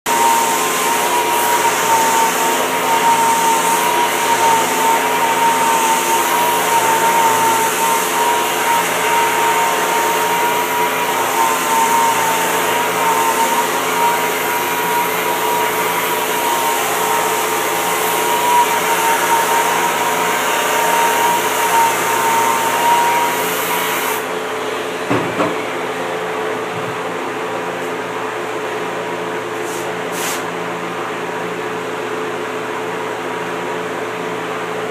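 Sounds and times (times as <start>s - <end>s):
rotary sander whining: 0.1s - 24.4s.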